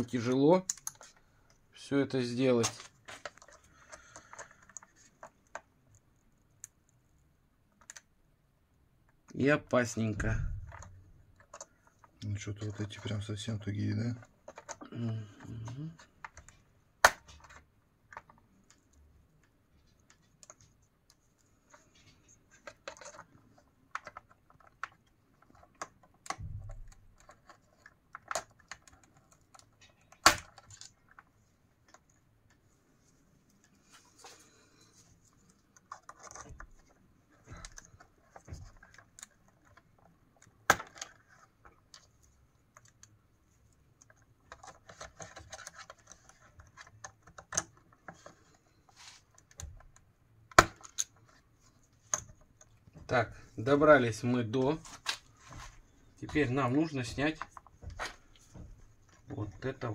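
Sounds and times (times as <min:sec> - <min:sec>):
small clicks and taps on plastic: 0:13.9 - 0:32.7, 0:35.4 - 0:53.5.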